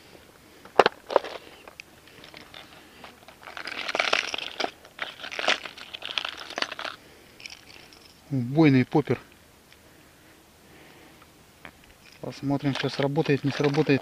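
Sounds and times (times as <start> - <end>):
fishing lures rattling in plastic box: 0.8 - 8.1, 12.1 - 14.0.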